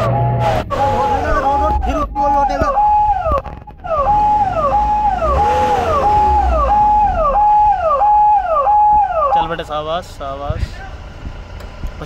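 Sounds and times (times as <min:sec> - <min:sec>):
electronic siren warning tone: 0:00.0 - 0:09.6.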